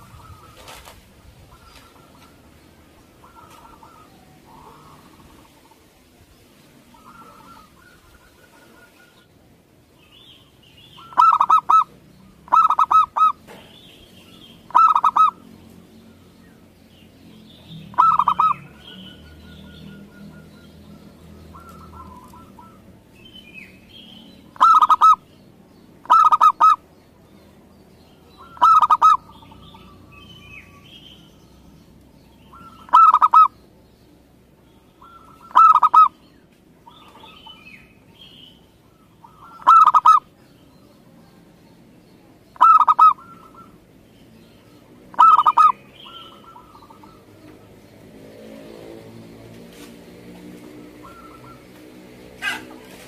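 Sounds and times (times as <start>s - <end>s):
dove cooing: 0.0s - 5.9s, 6.8s - 9.3s, 11.0s - 13.6s, 14.7s - 15.5s, 17.9s - 23.0s, 24.5s - 25.2s, 26.0s - 26.8s, 28.4s - 30.1s, 32.5s - 33.6s, 35.0s - 36.2s, 38.8s - 40.3s, 42.6s - 43.8s, 45.1s - 47.5s, 50.6s - 51.8s, 52.4s - 53.0s
high bird chirps: 10.0s - 15.5s.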